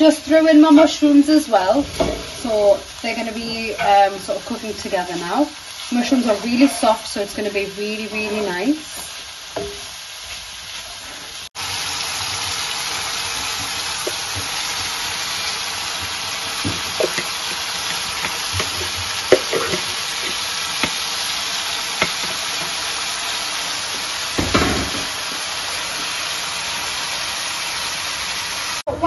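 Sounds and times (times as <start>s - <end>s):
food sizzling in a frying pan: 0.0s - 29.0s
spatula scraping a pan: 3.3s - 7.5s, 13.6s - 23.0s.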